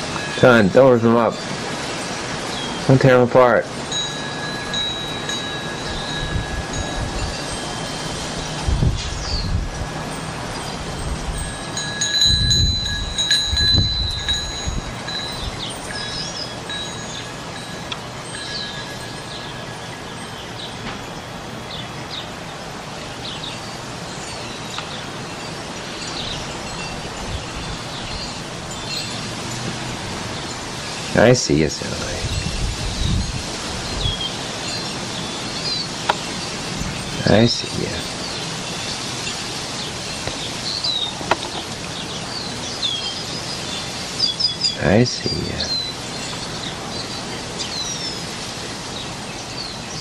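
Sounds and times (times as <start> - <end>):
wind rushing: 0.0 - 21.6, 25.6 - 42.6
small birds chirping: 0.0 - 50.0.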